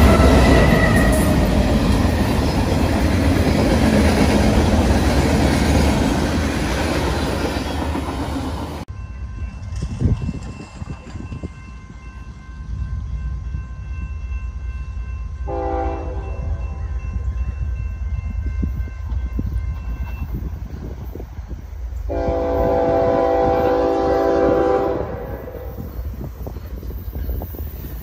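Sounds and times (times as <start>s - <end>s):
train horn blasts: 0.0s - 1.7s, 15.4s - 17.1s, 22.1s - 25.9s
train rumble: 0.0s - 28.0s.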